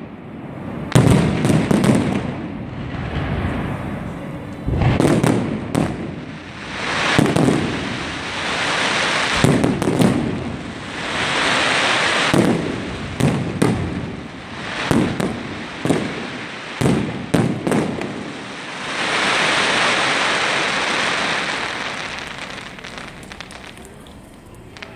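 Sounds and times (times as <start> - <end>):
fireworks crackling hiss: 0.0 - 24.9
firework shell bursts: 21.4 - 24.9.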